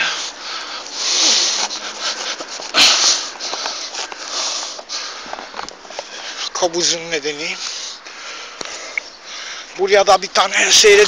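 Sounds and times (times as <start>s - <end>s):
breathy sniffs and breaths: 0.0s - 6.6s.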